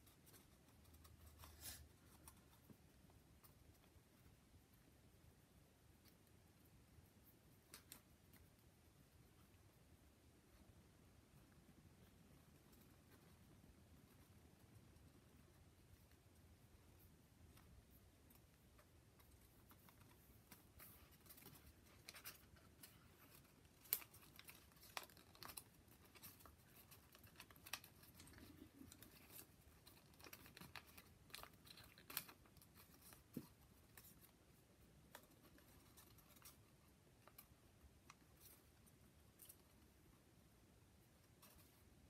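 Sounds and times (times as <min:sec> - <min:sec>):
paper rustling and crinkling: 0:19.2 - 0:34.4.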